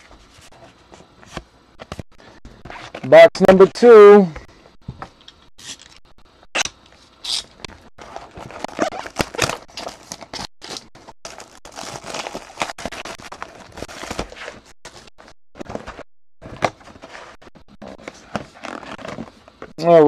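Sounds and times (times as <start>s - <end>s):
plastic shrink wrap crinkling: 8.0s - 14.7s
cardboard scraping: 8.0s - 19.5s.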